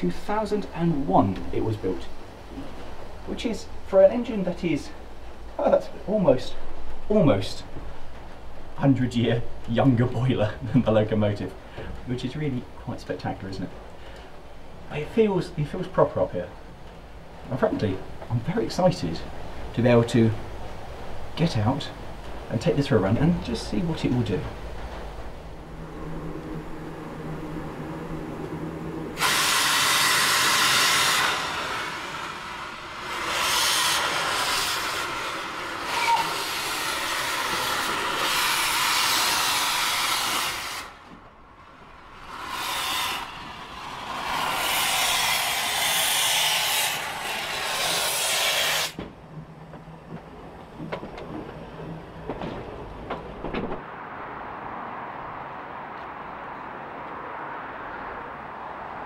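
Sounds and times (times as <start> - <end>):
steam hissing loudly: 29.2 - 41.0, 42.0 - 49.0.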